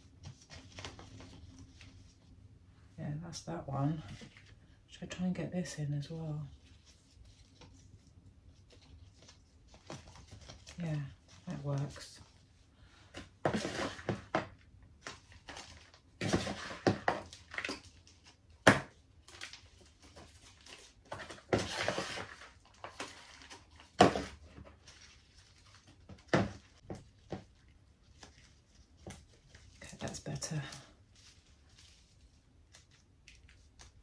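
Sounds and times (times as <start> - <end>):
soil rustling in plastic pot: 26.7 - 34.0.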